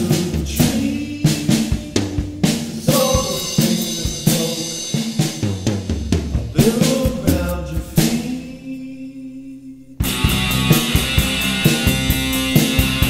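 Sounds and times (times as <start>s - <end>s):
bass guitar: 0.0s - 4.5s, 10.0s - 13.0s
rock drum kit beat: 0.0s - 8.4s, 10.0s - 13.0s
electric guitar: 10.0s - 13.0s.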